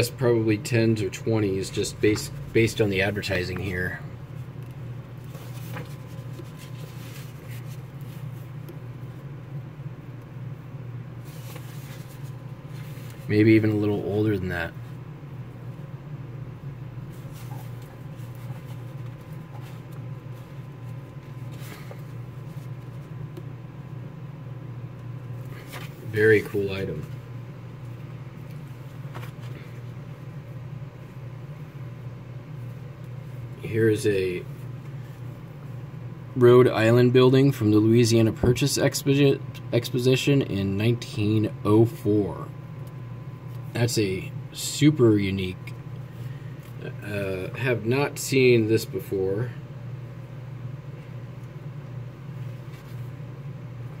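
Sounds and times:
low mechanical hum: 0:00.0 - 0:54.0
paper pages rustling: 0:04.4 - 0:08.8, 0:11.2 - 0:13.4, 0:17.1 - 0:23.2, 0:25.4 - 0:27.2, 0:28.4 - 0:29.9, 0:52.5 - 0:53.2.

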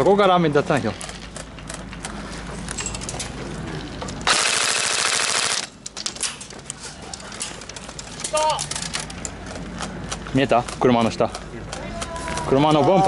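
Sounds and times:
airsoft rifle full-auto burst: 0:04.3 - 0:05.7.

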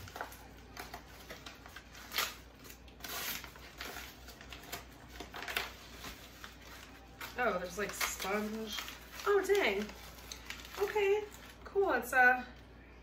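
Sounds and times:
plastic packaging tearing and crinkling: 0:00.0 - 0:11.7.

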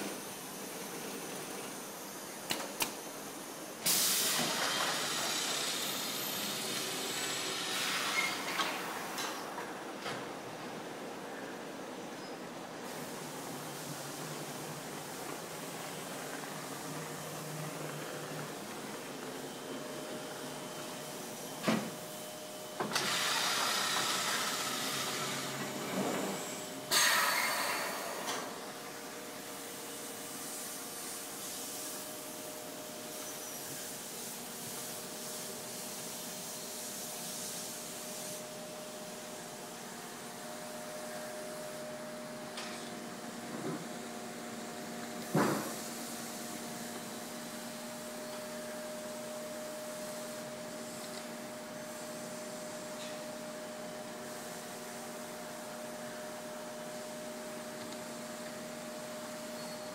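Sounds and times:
factory machinery running: 0:00.0 - 0:10.6, 0:12.8 - 0:36.5
loud air hiss: 0:03.0 - 0:09.2, 0:12.8 - 0:17.8, 0:19.8 - 0:43.4, 0:44.0 - 0:59.9.

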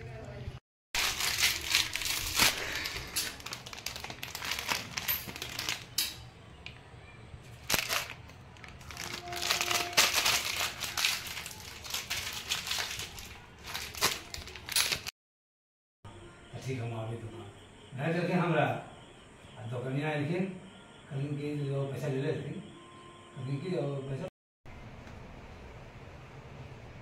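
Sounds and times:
plastic snack packet crinkling: 0:01.0 - 0:06.0, 0:07.5 - 0:15.1.

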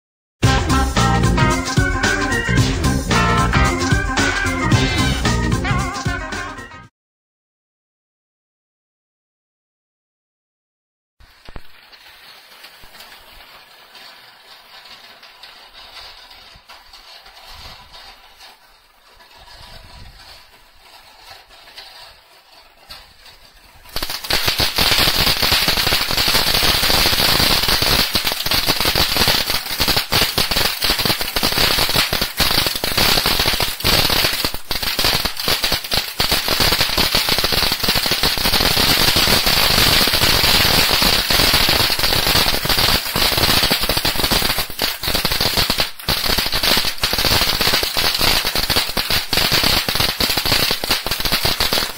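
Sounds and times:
firework fountain hissing and crackling: 0:11.2 - 0:51.9.

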